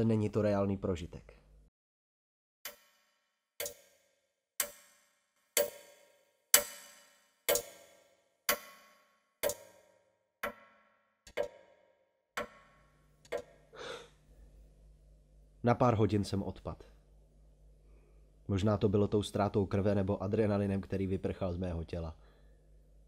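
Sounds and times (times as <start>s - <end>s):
clock ticking: 3.6s - 3.9s, 7.5s - 7.8s, 9.4s - 9.7s.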